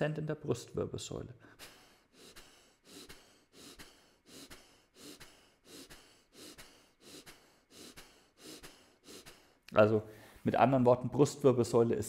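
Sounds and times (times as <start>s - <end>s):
short forceful breaths: 1.4s - 10.5s.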